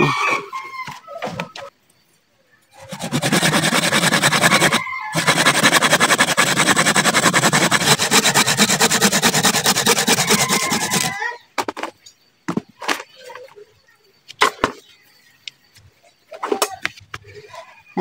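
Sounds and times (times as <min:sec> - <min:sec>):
hand saw cutting wood: 0:02.8 - 0:11.2.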